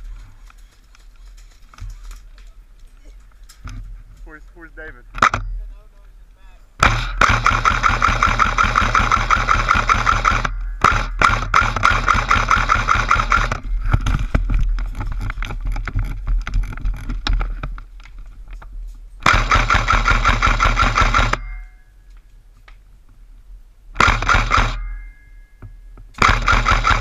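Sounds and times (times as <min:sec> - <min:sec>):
airsoft rifle firing bursts: 0:06.8 - 0:13.6, 0:19.2 - 0:21.4, 0:24.0 - 0:24.8, 0:26.2 - 0:27.0.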